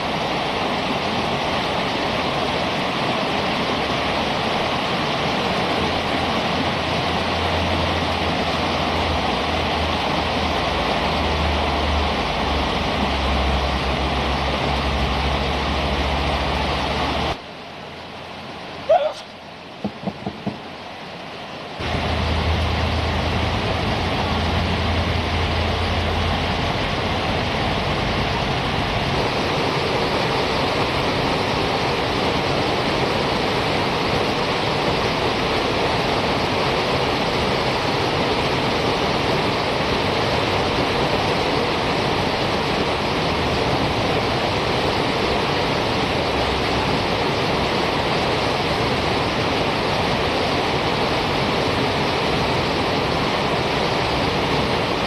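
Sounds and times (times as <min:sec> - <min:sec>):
river rapids rushing: 0:00.0 - 0:55.0
low hum: 0:21.8 - 0:29.6.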